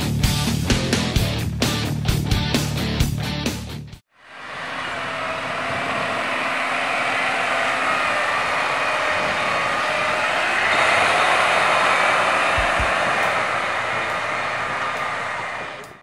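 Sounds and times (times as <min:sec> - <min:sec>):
truck engine and tyre noise: 0:04.2 - 0:16.0.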